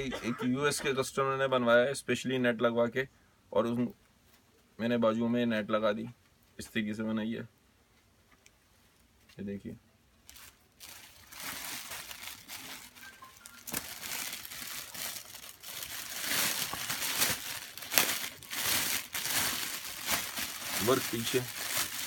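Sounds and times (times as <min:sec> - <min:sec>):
stiff fabric rustling and crinkling: 0:10.2 - 0:22.0.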